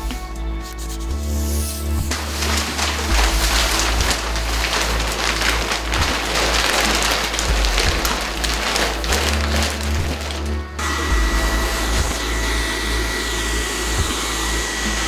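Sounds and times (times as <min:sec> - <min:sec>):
background music: 0:00.0 - 0:15.0
plastic sheeting crinkling: 0:02.1 - 0:12.2.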